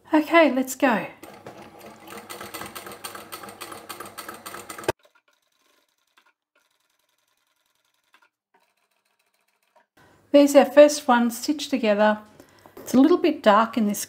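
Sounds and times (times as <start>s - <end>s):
sewing machine stitching: 1.1s - 9.9s.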